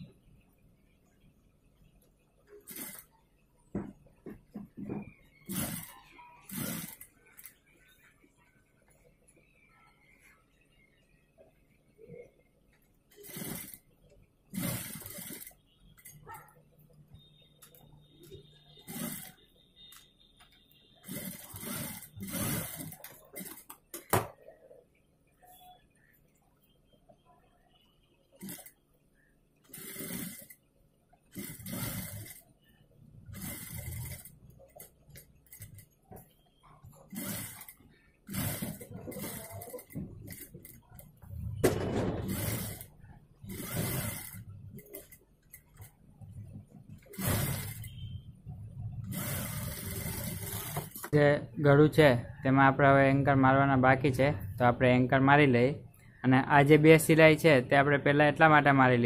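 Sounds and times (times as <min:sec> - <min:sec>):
sewing machine running: 0:02.5 - 0:03.2, 0:05.0 - 0:07.6, 0:13.1 - 0:13.9, 0:14.5 - 0:16.5, 0:17.1 - 0:24.2, 0:28.4 - 0:28.8, 0:29.6 - 0:32.5, 0:33.2 - 0:48.3, 0:48.9 - 0:51.2.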